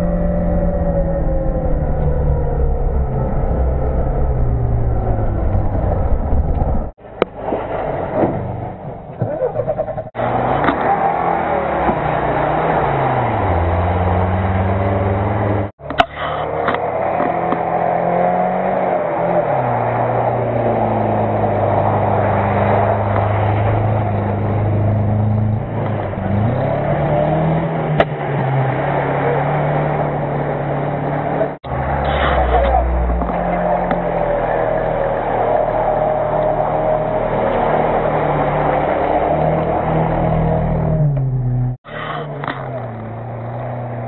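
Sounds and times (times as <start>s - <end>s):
engine revving hard: 10.1s - 44.0s.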